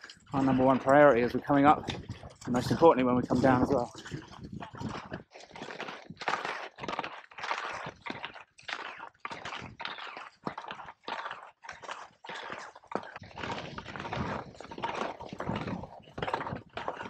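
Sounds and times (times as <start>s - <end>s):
skis crunching on snow: 0.0s - 17.0s.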